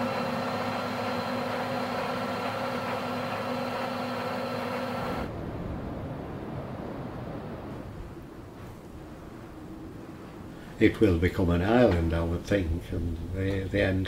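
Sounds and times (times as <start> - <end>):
tractor diesel engine running: 0.0 - 5.3.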